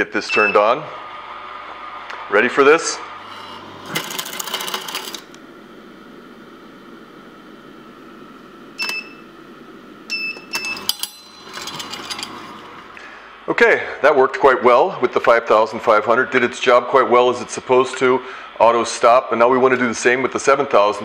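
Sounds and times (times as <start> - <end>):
short electronic beeps: 0.3 - 0.7
juicer gears grinding: 3.2 - 5.4, 10.6 - 13.0.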